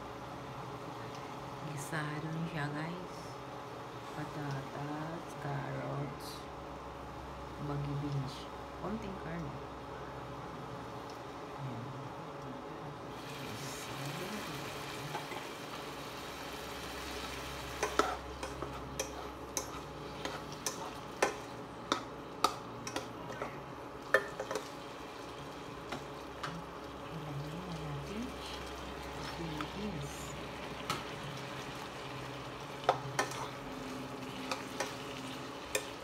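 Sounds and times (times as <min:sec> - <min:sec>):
food sizzling in a pan: 0:13.1 - 0:36.0.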